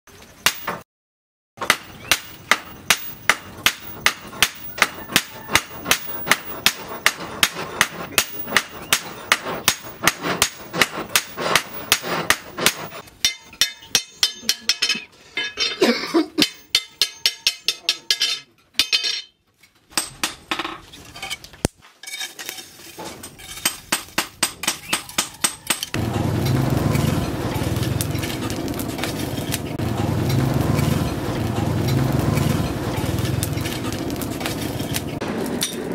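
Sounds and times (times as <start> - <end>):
hammer striking steel on anvil: 1.6 - 15.8, 16.4 - 19.3, 19.9 - 20.8, 23.3 - 29.6
forge low rushing: 25.9 - 35.9.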